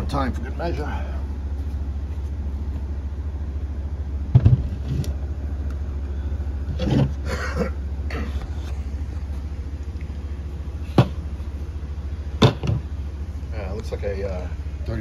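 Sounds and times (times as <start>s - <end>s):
steady low hum: 0.0s - 15.0s
heavy metal clunk: 4.3s - 5.0s, 10.8s - 11.3s, 12.4s - 12.9s.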